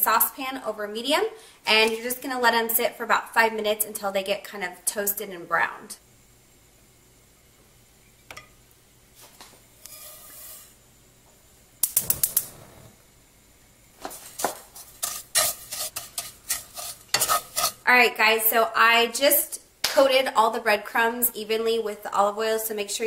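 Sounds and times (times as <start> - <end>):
wooden spatula scraping pan: 9.8 - 10.8, 14.1 - 17.8
sharp clicks: 11.8 - 12.8.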